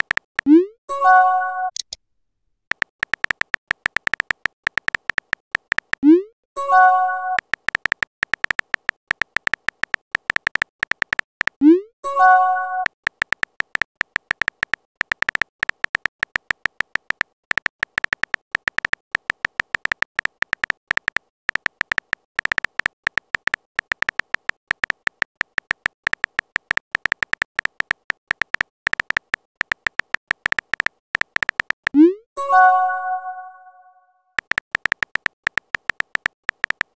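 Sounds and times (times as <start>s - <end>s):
phone keyboard typing clicks: 0.0s - 0.6s, 2.7s - 32.2s, 34.4s - 36.9s
message chime: 6.6s - 7.4s, 12.0s - 12.9s, 32.0s - 34.0s.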